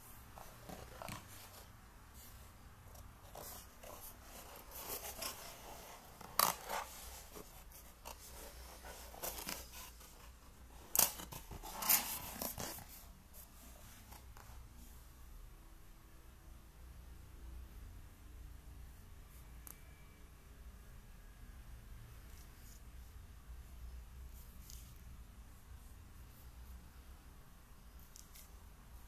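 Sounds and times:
cardboard rustling and scraping: 0.2 - 14.6.

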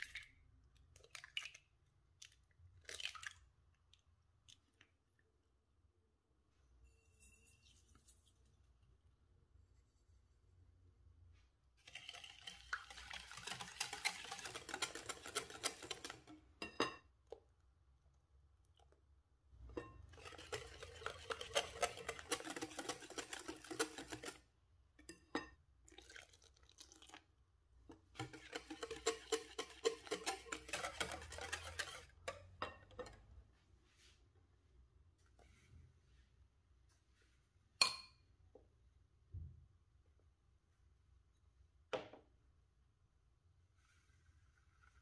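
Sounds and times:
whisk clicking against glass bowl: 12.7 - 16.4, 19.8 - 24.4, 28.2 - 33.2.

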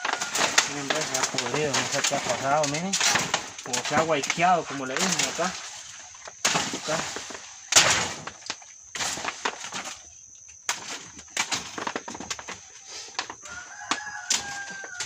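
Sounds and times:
blade chopping stalks: 0.0 - 5.6, 6.4 - 10.0
leaves rustling: 0.0 - 15.0
chicken calling faintly: 12.8 - 15.0.

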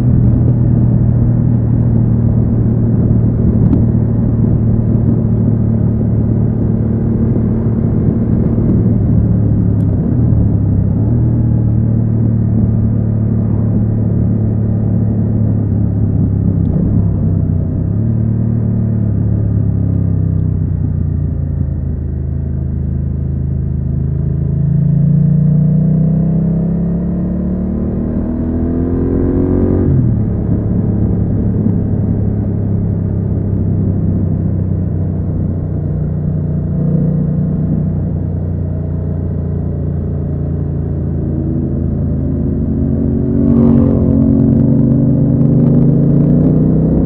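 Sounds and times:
motorcycle engine revving: 24.2 - 47.0.

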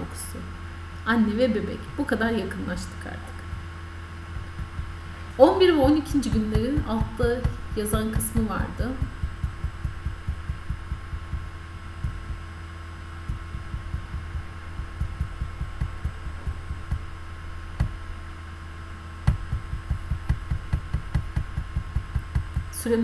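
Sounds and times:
low electrical hum: 0.0 - 23.0
soft low thumps: 0.0 - 23.0.

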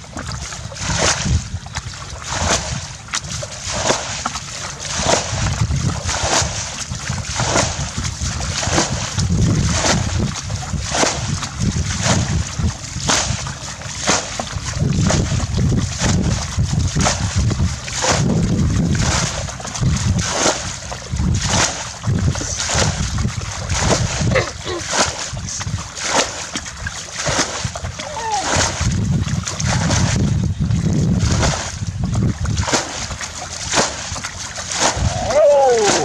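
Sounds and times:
water splashing from a bucket: 0.0 - 36.0
wind rumble on microphone: 0.0 - 36.0.

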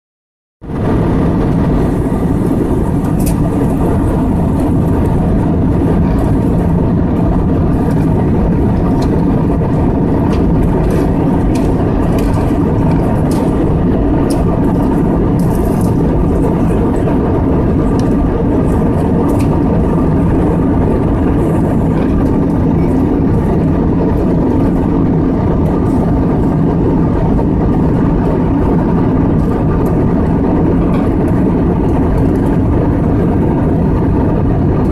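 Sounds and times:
air rushing along fuselage: 0.6 - 34.9
jet engines droning: 0.6 - 34.9.

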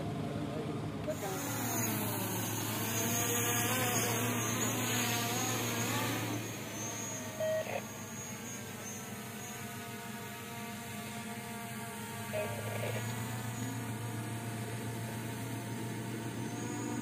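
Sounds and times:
drone propellers whining: 0.2 - 17.0
short beep: 6.9 - 7.8.

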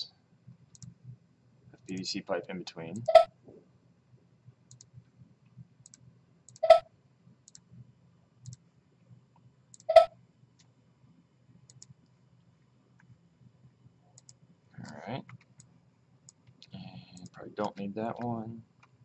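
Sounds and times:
computer mouse clicks: 0.7 - 1.0, 4.7 - 4.9, 5.8 - 6.8, 7.4 - 7.7, 8.4 - 8.6, 11.7 - 12.0, 14.2 - 15.7
faint light ticks: 4.7 - 4.9.

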